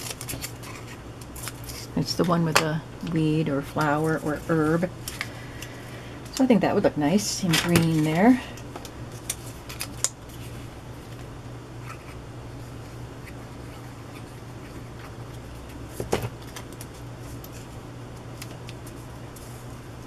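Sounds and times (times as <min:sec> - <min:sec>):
paper handling: 0:00.0 - 0:01.9, 0:09.1 - 0:12.2
steady low hum: 0:00.0 - 0:20.0.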